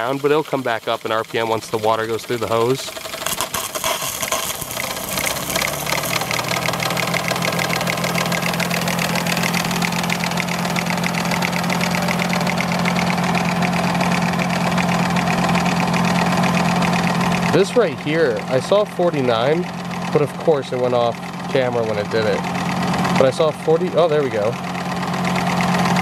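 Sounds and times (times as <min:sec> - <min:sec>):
water hissing and splashing: 0:00.0 - 0:15.6
turbine humming and whirring: 0:00.0 - 0:26.0.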